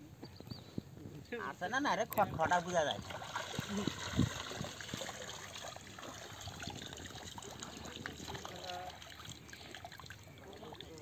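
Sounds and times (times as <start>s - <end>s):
water dripping and trickling: 2.0s - 11.0s
person wading through water: 2.6s - 11.0s.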